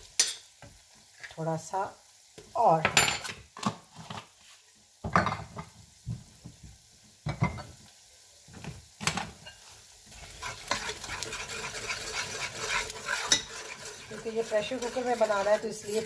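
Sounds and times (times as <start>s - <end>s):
spices sizzling in hot oil: 0.0s - 16.0s
metal spoon scraping pot: 10.3s - 16.0s.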